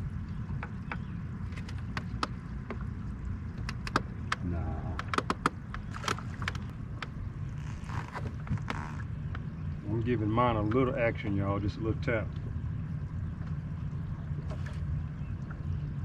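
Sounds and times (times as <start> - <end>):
steady low rumble: 0.0 - 16.0
gear clicking and knocking: 3.6 - 7.1.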